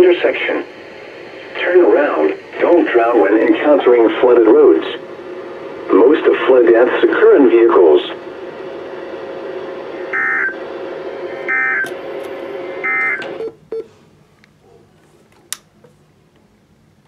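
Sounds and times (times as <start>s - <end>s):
steady hum and hiss: 0.0s - 17.0s
data tone bursts: 10.1s - 10.6s, 11.4s - 11.9s, 12.8s - 13.8s.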